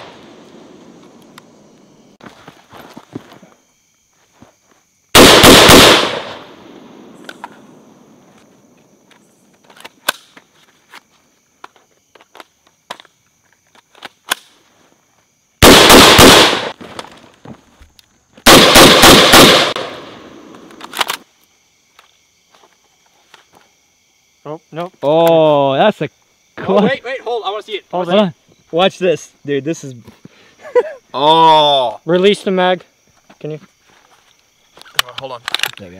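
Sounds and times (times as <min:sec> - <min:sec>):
rifle shots in bursts: 0:05.2 - 0:06.6, 0:15.6 - 0:16.8, 0:18.4 - 0:20.4.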